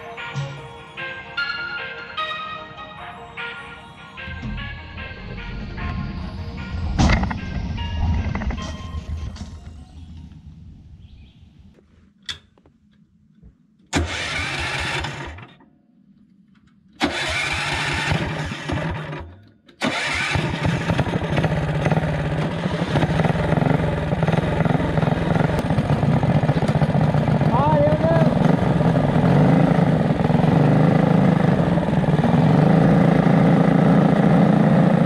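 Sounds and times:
small petrol engine starting and running: 13.9 - 15.6, 17.0 - 35.0.

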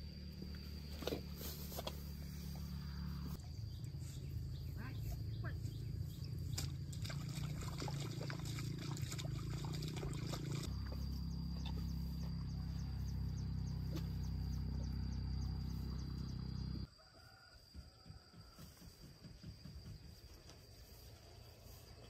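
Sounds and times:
high insect drone: 0.0 - 22.0
faint chirps: 10.6 - 16.9.

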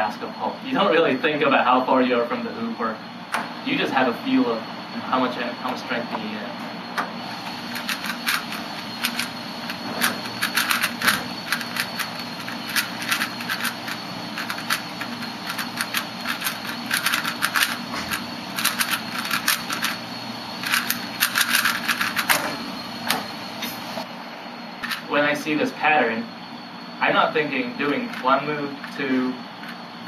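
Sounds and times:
puzzle cube clicking: 7.7 - 20.0.

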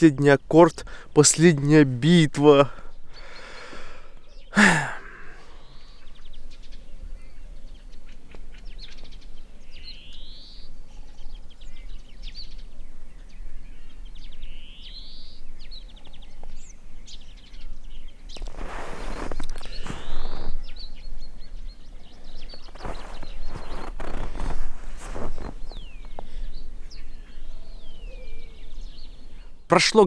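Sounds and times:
rising whistled bird call: 13.4 - 29.6.

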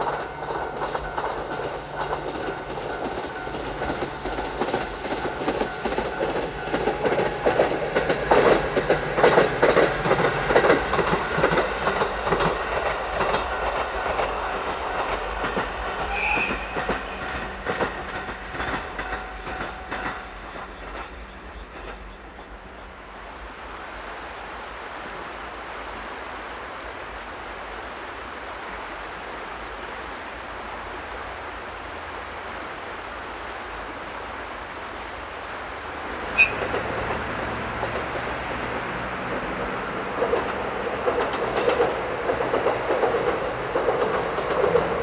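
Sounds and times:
wheels clacking over rail joints: 0.0 - 22.6, 36.0 - 45.0.

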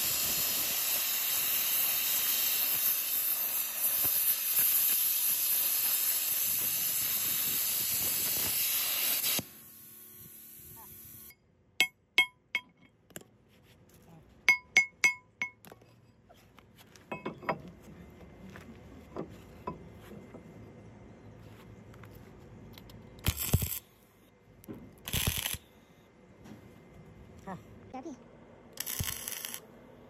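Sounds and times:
arc welding crackle: 0.0 - 11.3, 23.2 - 23.9, 25.0 - 25.7, 28.8 - 29.7
hammer striking steel bar: 11.8 - 12.9, 14.5 - 15.6
light metal clanks: 17.0 - 17.8.

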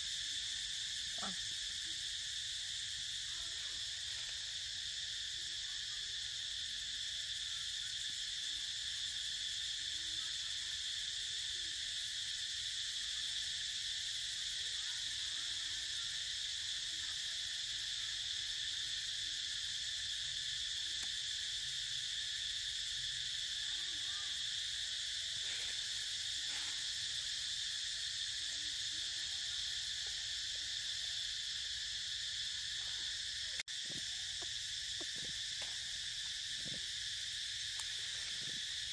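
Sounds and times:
forest insects droning: 0.0 - 38.9.

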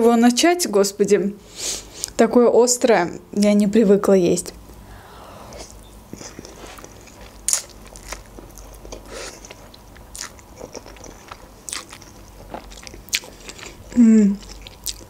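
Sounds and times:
noodles being slurped and chewed: 5.6 - 15.0.

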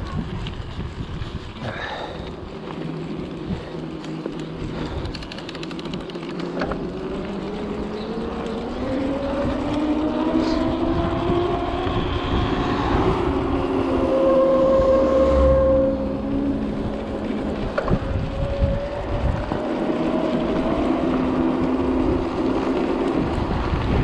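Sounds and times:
rapid clicking: 3.8 - 7.3
rising whine: 5.5 - 24.0
wind on microphone: 7.1 - 24.0.

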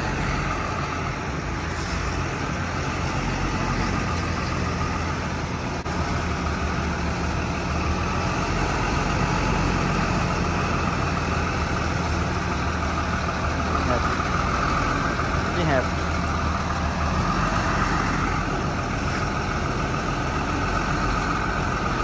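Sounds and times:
truck engine idling: 0.0 - 22.0.

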